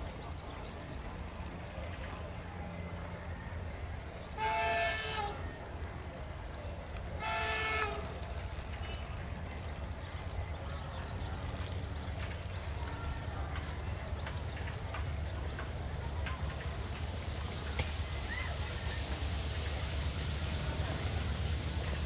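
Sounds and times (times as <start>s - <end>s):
locomotive horn blasts: 4.3s - 5.4s, 7.2s - 8.2s.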